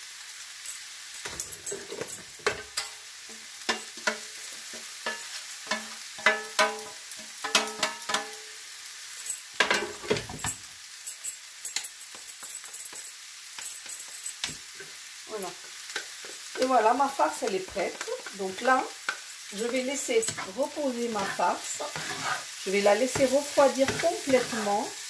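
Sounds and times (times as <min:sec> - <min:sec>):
filling sizzling in frying pan: 0:00.0 - 0:25.0
utensil scraping and knocking pan: 0:18.6 - 0:22.5.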